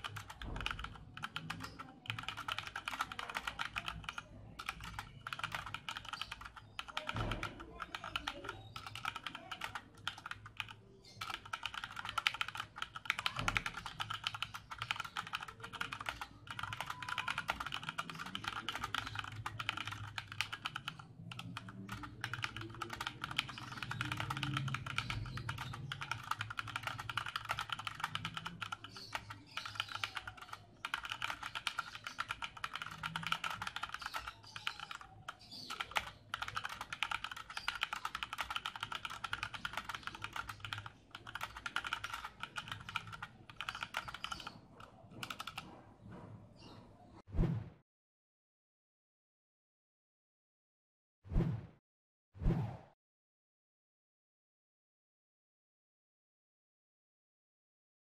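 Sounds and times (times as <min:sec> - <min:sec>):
mechanical keyboard typing: 0:00.0 - 0:45.7.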